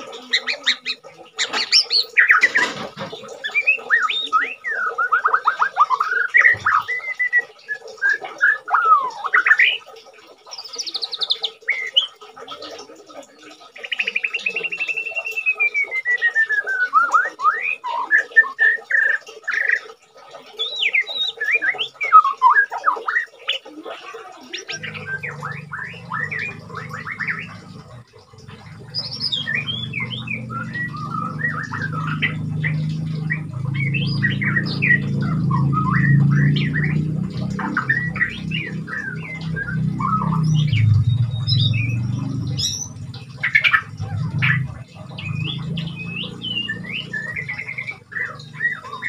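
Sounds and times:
bird singing whistles and trills: 0.1s - 12.6s, 13.7s - 23.7s, 24.5s - 49.0s
low steady hum: 24.7s - 49.0s.

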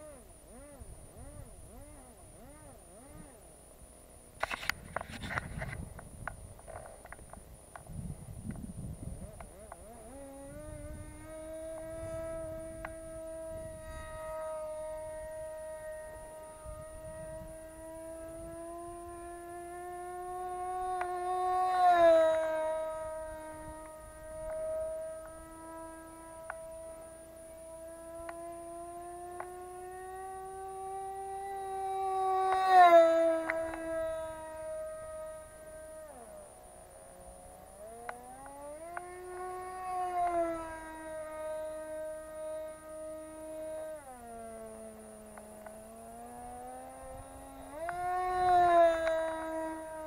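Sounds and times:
model aircraft engine whining: 0.0s - 50.0s
sharp ticks: 4.4s - 10.8s, 11.6s - 13.4s, 20.7s - 27.1s, 37.0s - 39.4s, 44.4s - 49.5s
wind rumble: 4.4s - 28.2s.

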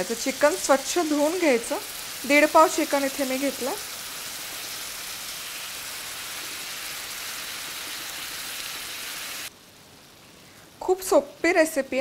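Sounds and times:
food sizzling in hot oil: 0.0s - 9.5s.

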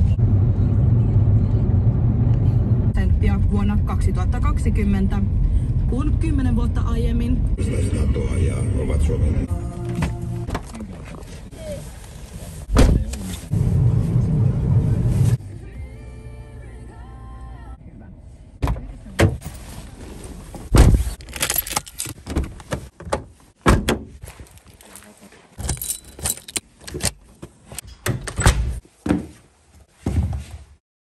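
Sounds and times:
keys jangling: 21.2s - 22.2s, 24.4s - 27.2s.

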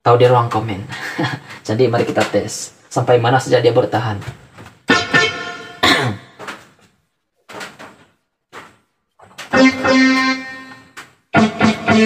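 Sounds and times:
electronic keyboard test phrases: 4.9s - 6.2s, 9.4s - 12.0s.

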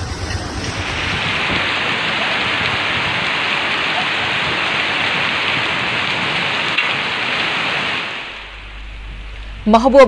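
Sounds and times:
heavy rain on wet street: 0.0s - 9.6s.

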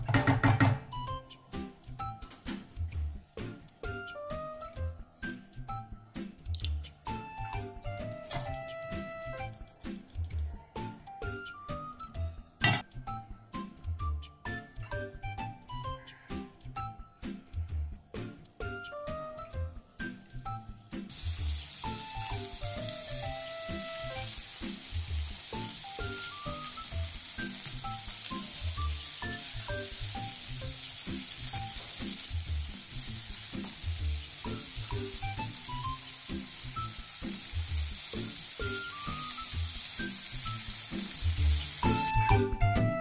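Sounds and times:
pumpkin sizzling in hot oil: 19.3s - 42.2s.

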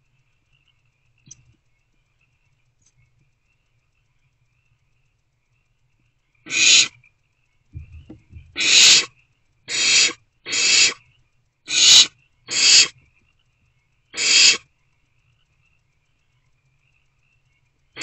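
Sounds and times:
owlets hissing rasps: 6.5s - 7.0s, 8.5s - 11.0s, 11.7s - 13.0s, 14.1s - 14.7s
soft low thumps: 7.8s - 8.6s.

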